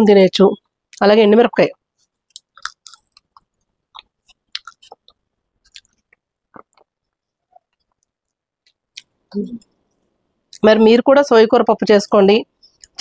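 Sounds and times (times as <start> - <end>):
person chewing food: 2.0 - 10.6.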